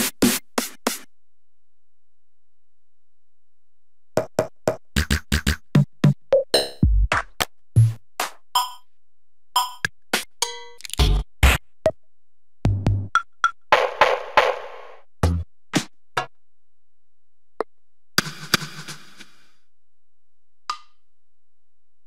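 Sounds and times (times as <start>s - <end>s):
snappy percussion: 13.2s - 14.8s.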